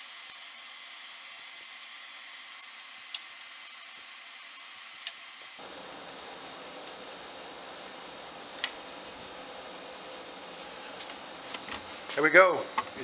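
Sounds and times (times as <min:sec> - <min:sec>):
steady hiss: 0:00.0 - 0:05.6.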